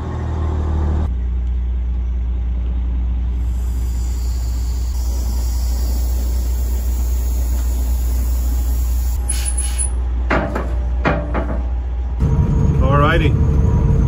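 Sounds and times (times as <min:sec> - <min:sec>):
diesel engine low rumble: 0:00.0 - 0:14.0
high hiss: 0:03.4 - 0:10.0.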